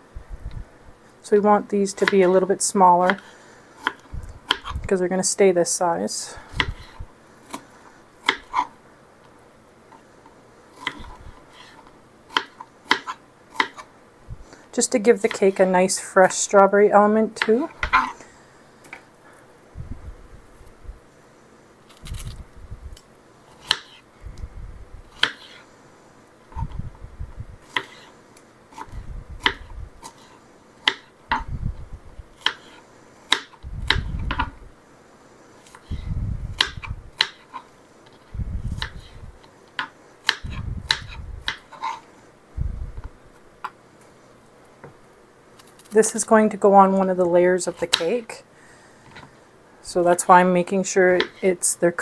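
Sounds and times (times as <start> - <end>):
knife chopping on cutting board: 6.6 - 8.7, 10.8 - 13.9, 23.6 - 24.0, 25.2 - 25.6, 27.7 - 28.1, 28.8 - 31.4, 32.4 - 34.5, 36.6 - 37.7, 39.8 - 42.0.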